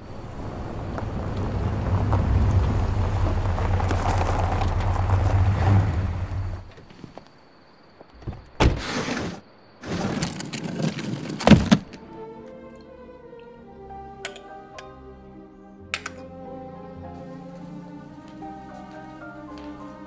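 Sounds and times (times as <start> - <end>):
car engine rumbling: 0.0 - 6.9
rustling noise: 0.1 - 12.0
soft orchestral music: 11.8 - 20.0.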